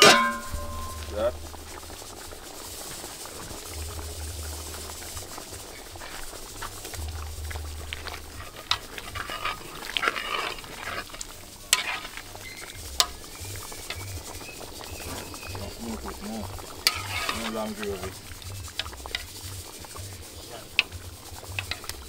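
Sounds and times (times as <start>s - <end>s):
spoon knocking against metal pot: 0.0s - 1.1s
spoon stirring a pot: 0.0s - 2.5s, 3.4s - 22.0s
stew sizzling and bubbling: 0.0s - 22.0s.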